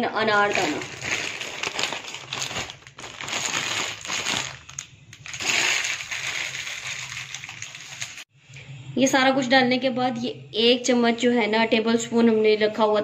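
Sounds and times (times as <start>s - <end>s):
dried seeds rustling: 0.3s - 8.3s.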